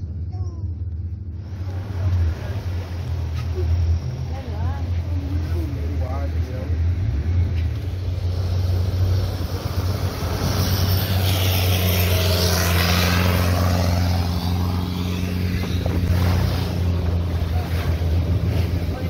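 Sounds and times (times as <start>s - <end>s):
motorboat engine humming: 0.0s - 19.0s
passing boat and wake: 0.0s - 19.0s
water rushing along hull: 0.0s - 19.0s.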